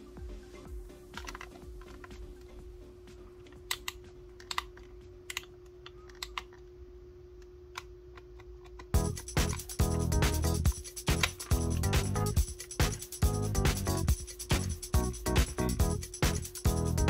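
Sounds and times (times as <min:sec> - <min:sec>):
faint steady hum: 0:00.0 - 0:17.0
loud music: 0:09.0 - 0:17.0.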